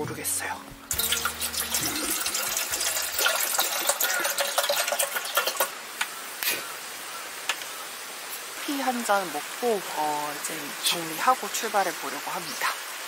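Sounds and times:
water pouring into a kettle: 0:00.9 - 0:05.9
gas burner hissing: 0:00.9 - 0:06.8.

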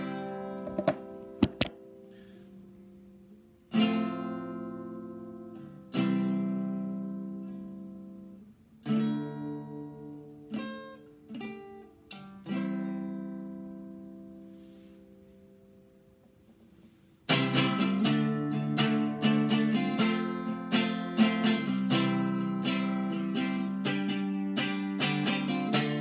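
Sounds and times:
acoustic guitar strumming chords: 0:00.0 - 0:15.0, 0:16.8 - 0:26.0.

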